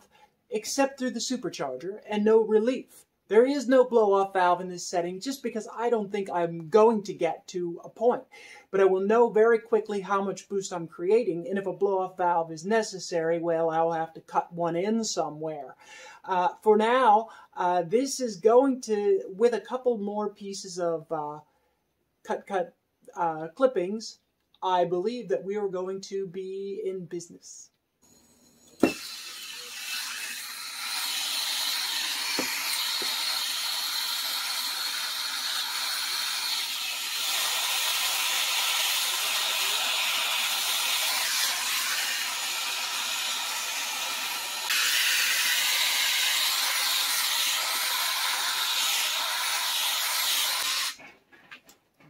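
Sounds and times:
gas torch flame hissing: 28.1s - 51.0s.

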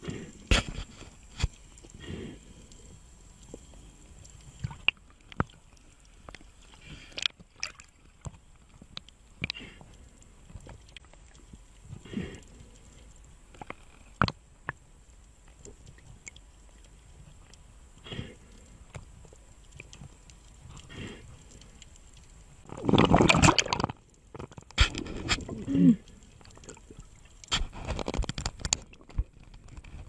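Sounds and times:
faint water hiss: 0.0s - 30.0s
sharp underwater clicks: 18.4s - 25.6s, 26.2s - 30.0s.

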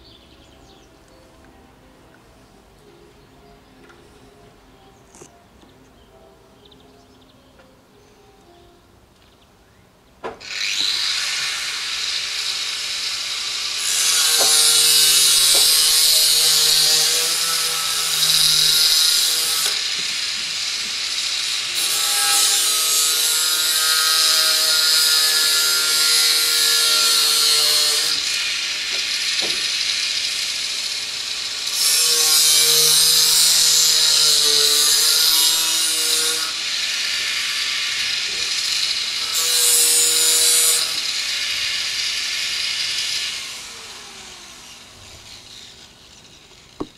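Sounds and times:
angle grinder cutting metal: 10.4s - 46.9s.

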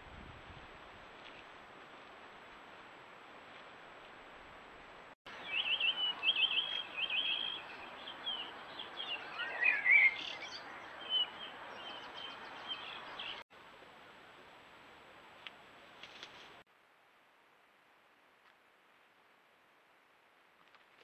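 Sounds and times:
birds singing: 5.3s - 13.4s.

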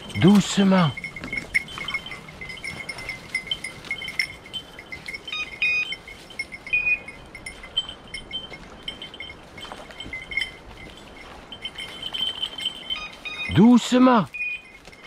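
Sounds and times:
dog collar bells tinkling: 0.0s - 15.0s.

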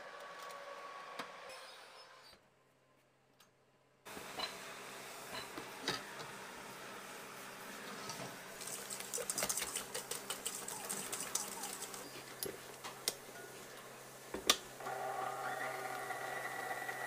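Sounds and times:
whisk ticking and rattling in bowl: 8.6s - 12.1s
mixer motor whine: 14.8s - 17.0s.

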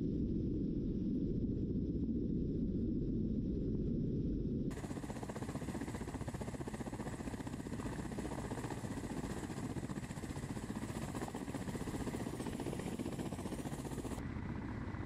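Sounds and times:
helicopter rotor beat: 4.7s - 15.0s
helicopter turbine noise: 4.7s - 15.0s.

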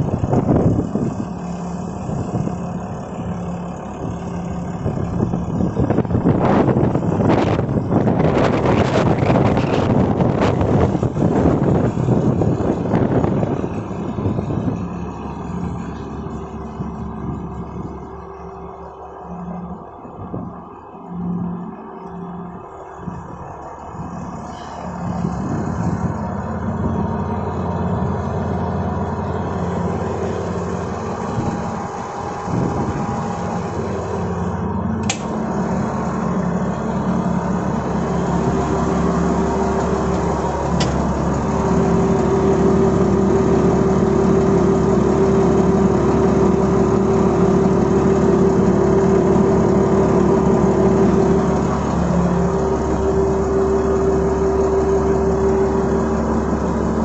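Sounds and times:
diesel forklift engine idling: 0.0s - 57.0s.

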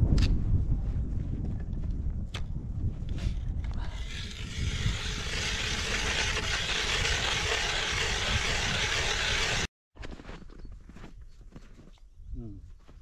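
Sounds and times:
ice auger boring into ice: 3.9s - 9.7s.

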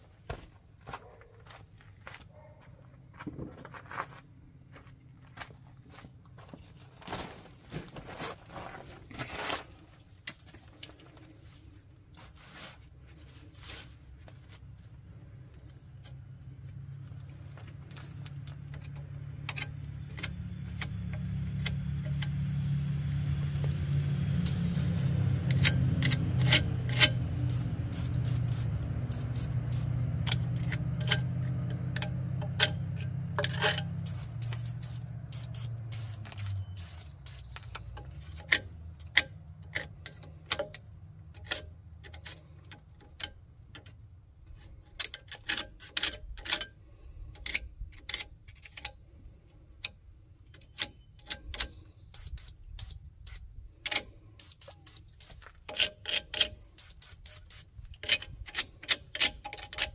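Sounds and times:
low droning hum: 9.7s - 42.0s
metal tools clicking and tapping: 18.2s - 23.7s, 24.4s - 59.9s.

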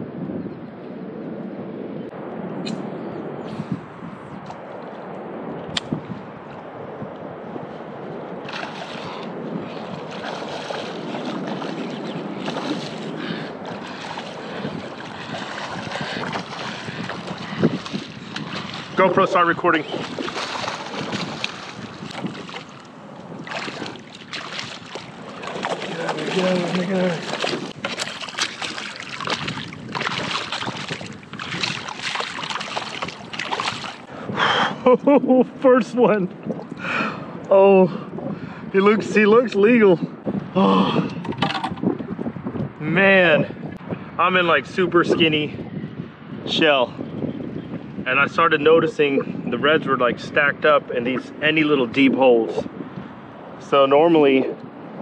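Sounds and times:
wind buffeting microphone: 0.0s - 55.0s
water washing around kayak: 8.4s - 34.4s.

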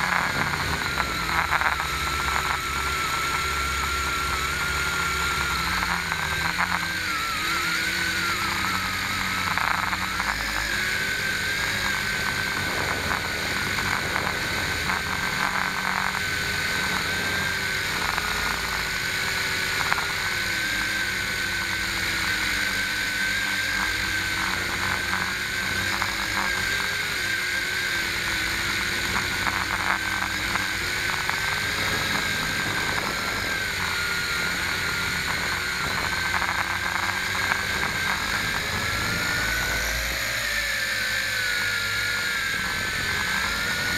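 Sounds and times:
drone propellers whining: 0.0s - 43.9s.

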